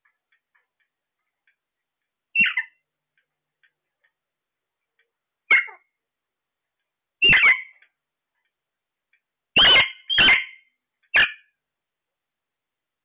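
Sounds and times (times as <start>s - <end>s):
parakeets squawking: 2.4s - 2.8s, 5.5s - 5.8s, 7.2s - 7.8s, 9.6s - 10.6s, 11.2s - 11.4s.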